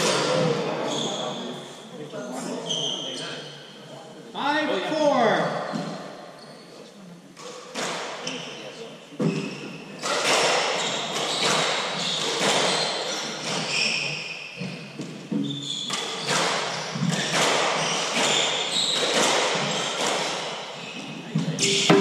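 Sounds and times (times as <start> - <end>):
shoes squeaking on floor: 0.0 - 4.5, 5.2 - 22.0
squash ball hits echoing: 9.2 - 22.0.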